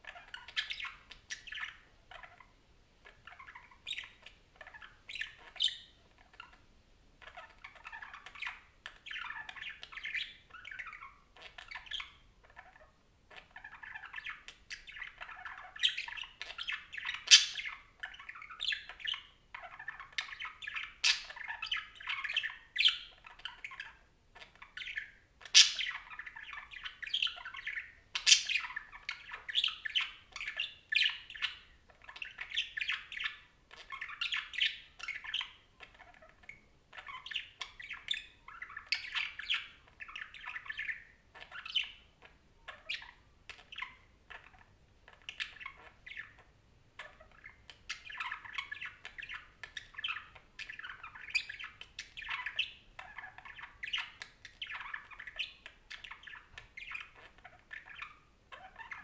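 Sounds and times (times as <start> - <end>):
budgerigar chattering: 7.3 - 42.0.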